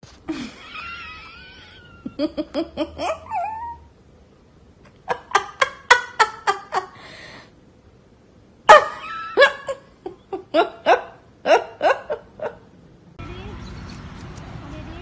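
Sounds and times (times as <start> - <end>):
person laughing: 0.3 - 3.8, 5.0 - 7.0, 8.7 - 12.6.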